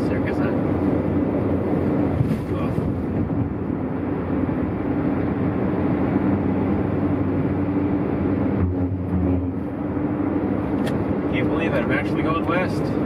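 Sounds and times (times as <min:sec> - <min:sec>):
deep rumble: 0:00.0 - 0:12.1
car driving at highway speed: 0:00.0 - 0:13.0.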